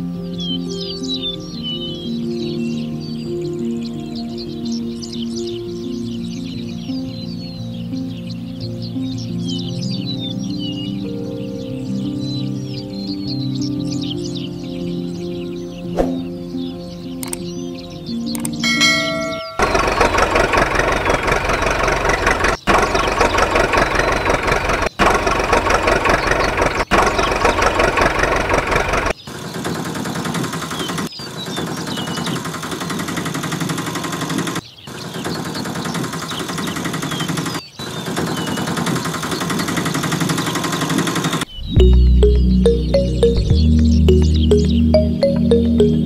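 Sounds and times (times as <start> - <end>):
engine running with rough clatter: 19.5 - 31.1, 31.9 - 34.6.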